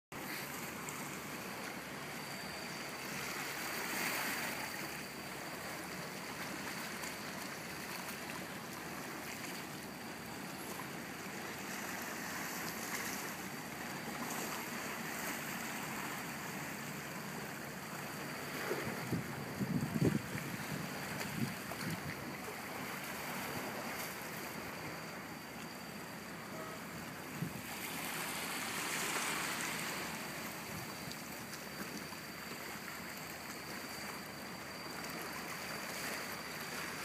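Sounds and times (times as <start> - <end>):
waves lapping over rocks: 27.0 - 37.0.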